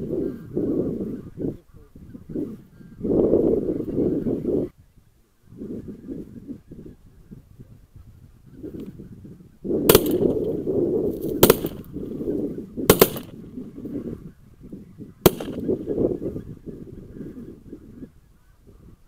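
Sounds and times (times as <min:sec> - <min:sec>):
shotgun shots: 0:09.9 - 0:10.4, 0:11.4 - 0:11.9, 0:12.9 - 0:13.4, 0:15.3 - 0:15.7.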